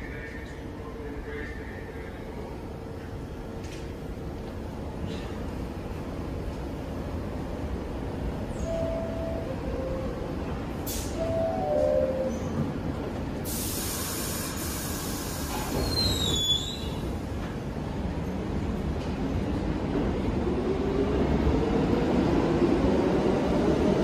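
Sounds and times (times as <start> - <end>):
subway train rumble: 0.0 - 24.0
air hiss burst: 13.4 - 16.3
brief squeal: 15.7 - 17.0.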